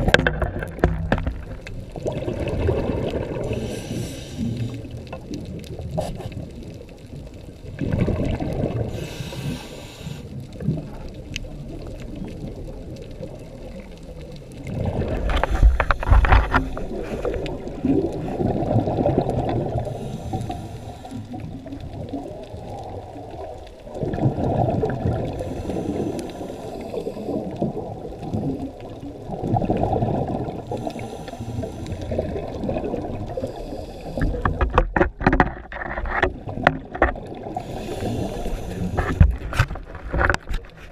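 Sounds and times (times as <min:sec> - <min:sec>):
exhaled bubbles rushing: 0:00.0 - 0:09.0, 0:10.6 - 0:31.0, 0:31.6 - 0:34.7
regulator inhale hiss: 0:03.4 - 0:05.0, 0:08.9 - 0:10.6, 0:19.8 - 0:21.5, 0:25.3 - 0:27.6, 0:30.7 - 0:32.3, 0:33.3 - 0:34.5, 0:37.6 - 0:39.2.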